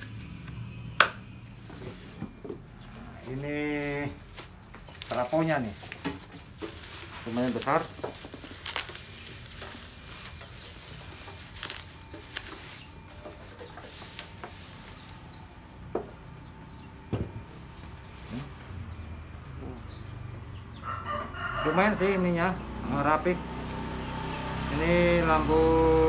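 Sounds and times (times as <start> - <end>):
bubble wrap crinkling: 3.1 - 15.8
small bird chirping: 10.2 - 20.9.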